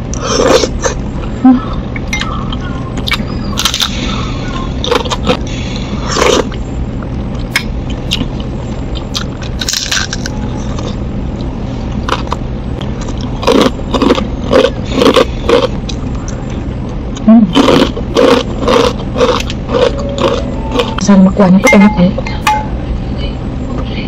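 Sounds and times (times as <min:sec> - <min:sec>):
steady low hum: 0:00.0 - 0:24.0
person chewing food: 0:01.9 - 0:21.0.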